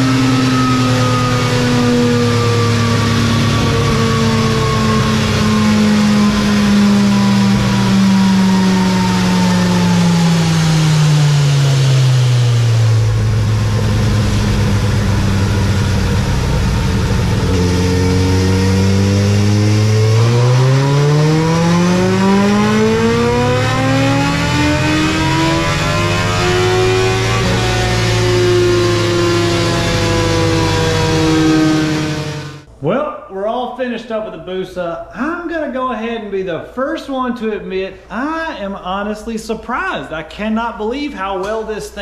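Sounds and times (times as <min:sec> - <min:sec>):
motorcycle engine winding down: 0:00.0 - 0:33.0.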